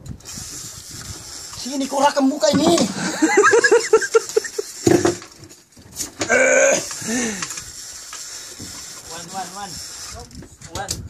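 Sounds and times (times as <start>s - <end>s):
men laughing and whooping: 2.9s - 4.8s.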